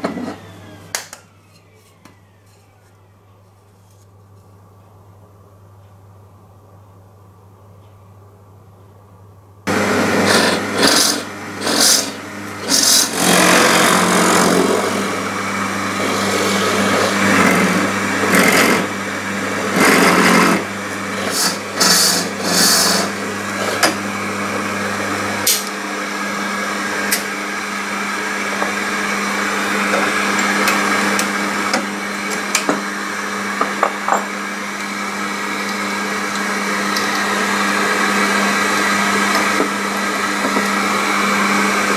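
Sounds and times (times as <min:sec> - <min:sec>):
shop vacuum running: 0:00.0 - 0:04.4, 0:09.6 - 0:41.9
drill press boring wood: 0:09.7 - 0:41.9.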